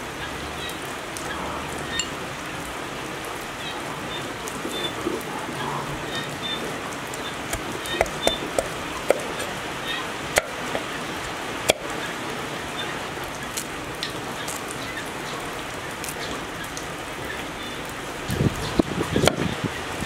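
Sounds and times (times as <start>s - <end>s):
steady rain-like hiss: 0.0s - 20.0s
cleaver knocking on mortar rim: 7.5s - 9.6s, 10.4s - 10.9s, 11.7s - 11.9s
ingredients being scraped: 7.5s - 9.6s.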